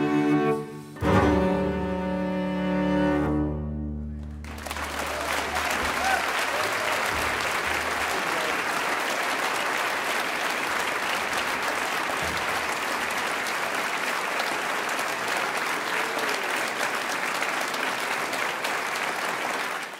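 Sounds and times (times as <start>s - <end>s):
audience applauding: 4.2s - 19.9s.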